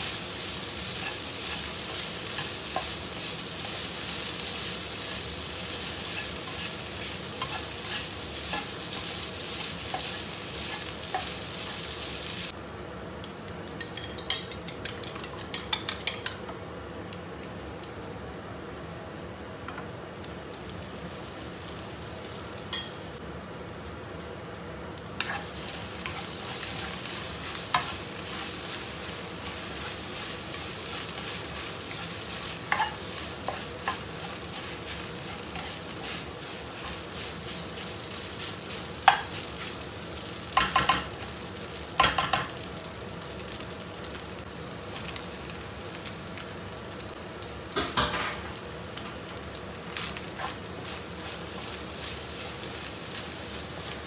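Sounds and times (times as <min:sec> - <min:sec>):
spatula stirring and scraping: 0:00.0 - 0:11.8, 0:14.0 - 0:16.3, 0:25.2 - 0:39.8, 0:50.0 - 0:54.0
food sizzling in a wok: 0:00.0 - 0:54.0
fork beating egg in bowl: 0:14.2 - 0:16.3.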